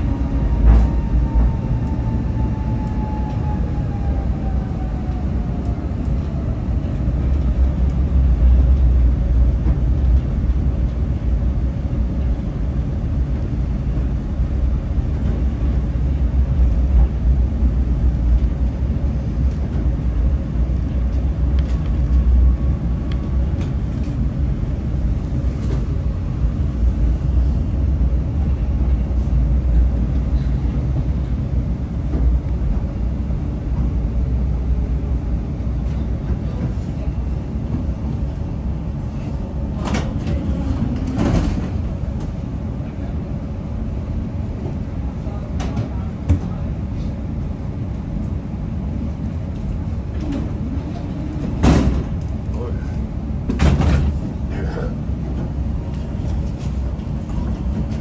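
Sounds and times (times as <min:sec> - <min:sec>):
tram wheels rumbling on rails: 0:00.0 - 0:58.0.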